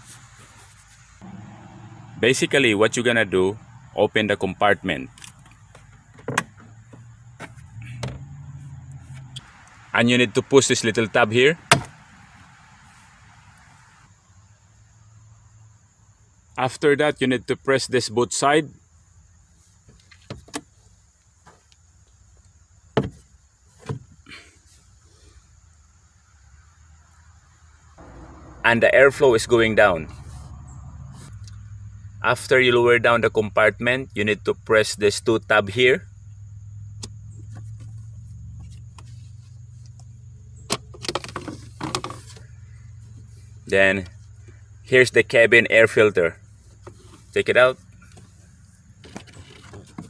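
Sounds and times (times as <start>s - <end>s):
steady low hum: 28.0s - 35.1s.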